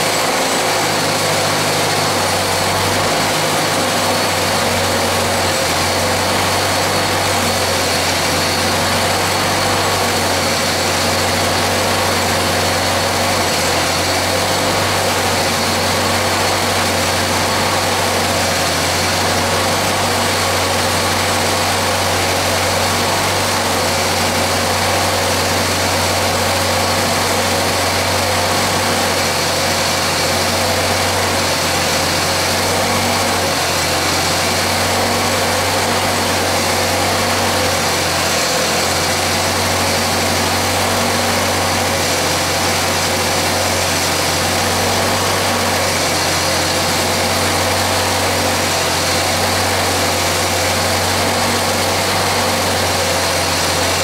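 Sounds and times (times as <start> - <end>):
small engine running steadily: 0.0 - 54.0.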